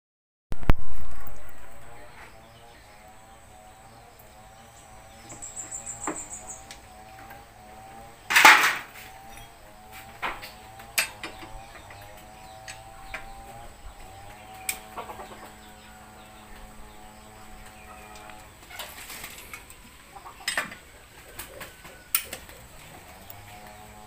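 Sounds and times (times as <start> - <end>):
chickens clucking: 1.2 - 24.0
loud clatter: 8.3 - 9.0.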